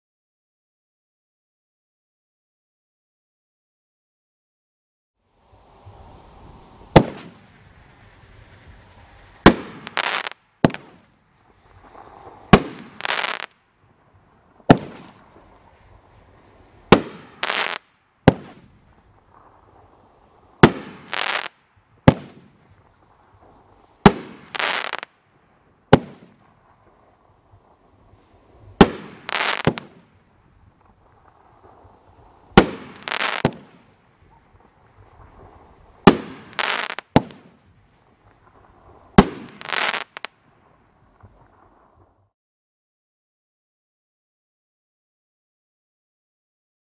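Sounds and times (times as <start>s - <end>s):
crackling firework stars: 5.2s - 42.3s
faint fuse hiss: 5.3s - 42.3s
firework bangs: 6.4s - 13.6s, 14.6s - 16.0s, 16.8s - 25.1s, 25.9s - 40.3s.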